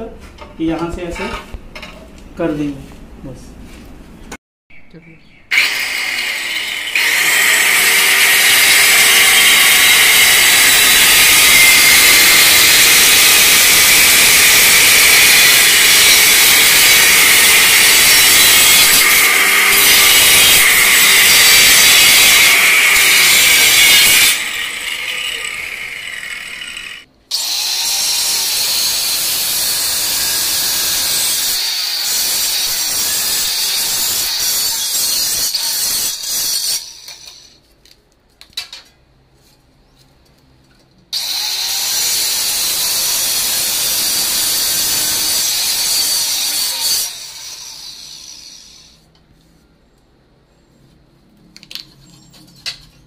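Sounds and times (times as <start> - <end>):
electric tile cutter whining: 5.5 - 37.6, 41.2 - 49.0.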